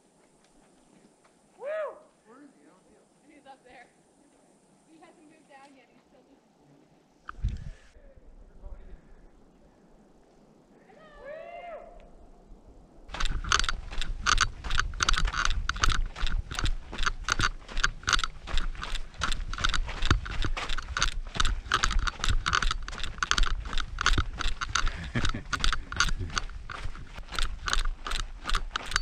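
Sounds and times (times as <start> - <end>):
wind rumble: 7.3 - 29.0
running footsteps on gravel: 13.1 - 29.0.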